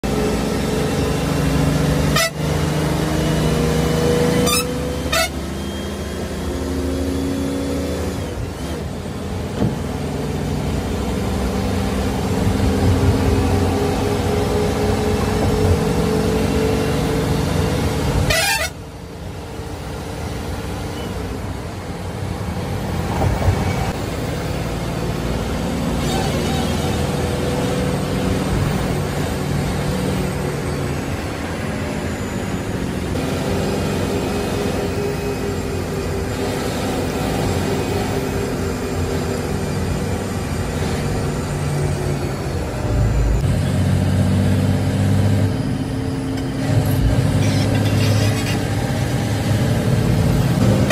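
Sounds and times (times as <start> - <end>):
bus engine running: 0.0 - 50.9
road noise: 0.0 - 50.9
bus horn honking: 1.8 - 3.0, 4.2 - 6.2, 18.0 - 19.0, 50.6 - 50.9.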